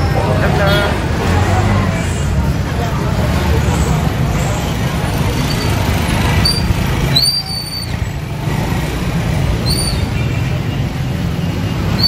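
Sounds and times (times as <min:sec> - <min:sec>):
motorcycle engines rumbling: 0:00.0 - 0:12.0
short high squeals: 0:06.4 - 0:08.1, 0:09.6 - 0:10.2.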